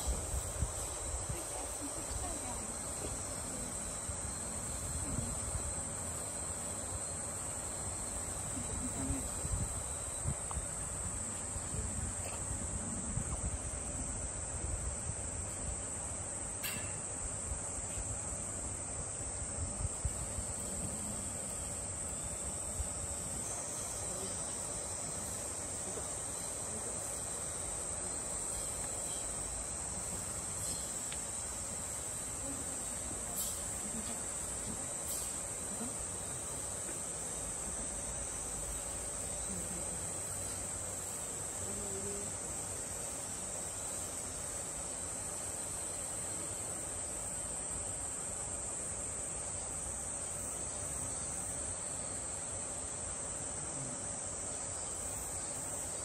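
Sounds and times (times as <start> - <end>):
insect chorus chirring: 0.0 - 56.0.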